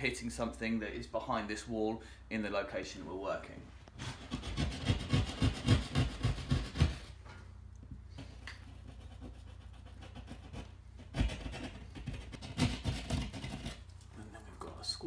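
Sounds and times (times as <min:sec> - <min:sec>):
saw cutting drywall: 0:04.0 - 0:07.2, 0:08.6 - 0:13.9.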